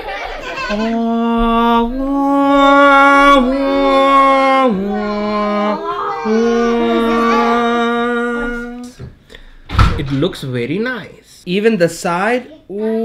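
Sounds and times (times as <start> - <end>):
person singing held notes: 0.7 - 9.0.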